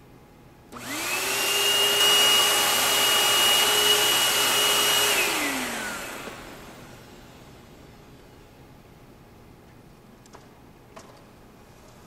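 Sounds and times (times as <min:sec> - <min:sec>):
vacuum cleaner motor whine: 0:00.7 - 0:07.8.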